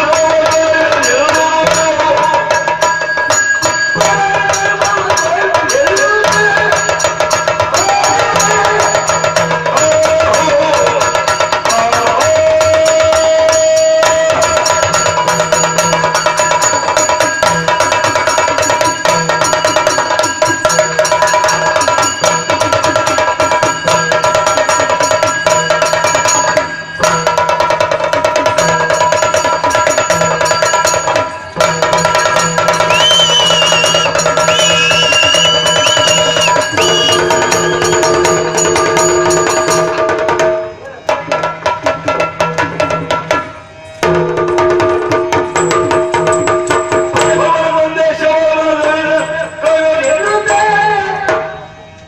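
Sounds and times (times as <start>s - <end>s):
fast dense drumming: 0.0s - 49.6s.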